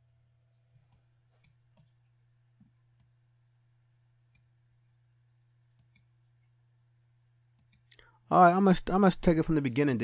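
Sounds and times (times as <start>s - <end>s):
computer mouse clicks: 0.8s - 2.0s, 2.6s - 3.2s, 4.3s - 4.5s, 5.7s - 6.1s, 7.5s - 8.0s.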